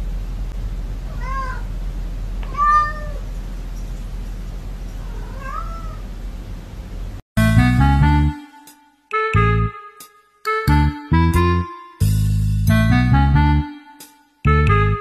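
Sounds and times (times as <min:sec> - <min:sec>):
steady low hum: 0:00.0 - 0:08.2
cat meowing: 0:01.0 - 0:01.7, 0:02.4 - 0:03.3, 0:05.0 - 0:06.1.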